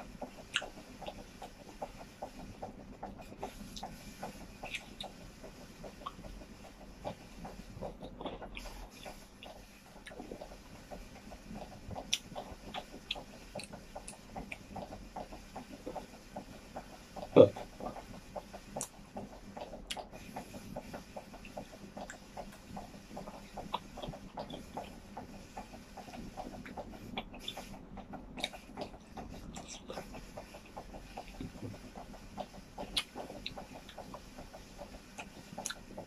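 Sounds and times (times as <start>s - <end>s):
chewing and lip smacking: 0.3s - 2.7s, 3.3s - 7.2s, 7.8s - 16.0s, 19.6s - 20.2s, 21.3s - 25.0s, 28.3s - 32.0s, 32.8s - 35.9s
wet mouth clicks: 32.8s - 34.1s.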